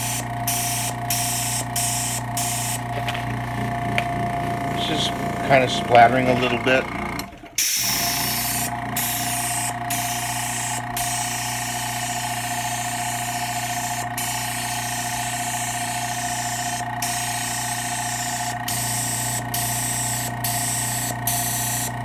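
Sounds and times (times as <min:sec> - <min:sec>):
airbrush spraying hiss: 0:00.0 - 0:02.8, 0:07.6 - 0:21.9
steady hum: 0:00.0 - 0:22.0.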